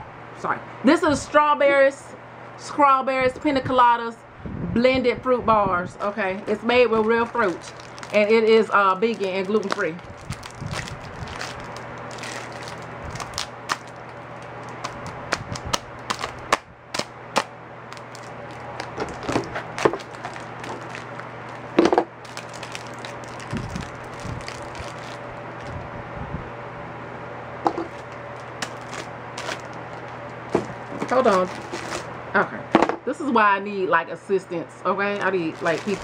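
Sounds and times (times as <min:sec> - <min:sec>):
steady low hum: 0:00.0 - 0:36.0
plastic packaging crinkling: 0:06.0 - 0:25.9, 0:27.7 - 0:32.1, 0:35.2 - 0:36.0.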